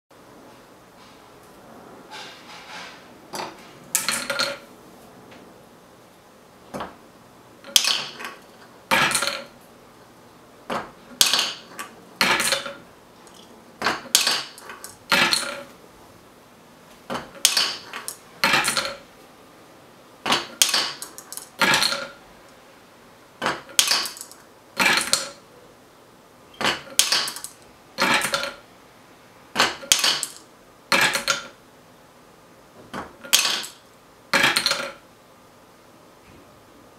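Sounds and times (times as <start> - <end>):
marbles clacking on wood: 7.7 - 9.6, 11.2 - 15.7, 17.1 - 19.0, 20.3 - 22.2, 23.4 - 25.4, 26.6 - 28.6, 29.6 - 31.6, 33.2 - 33.8, 34.4 - 35.0.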